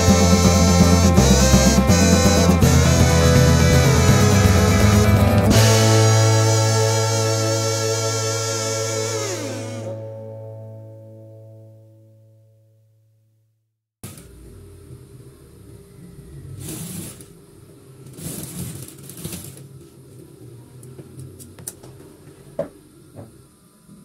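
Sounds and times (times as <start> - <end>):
musical note: 0.0 - 12.8.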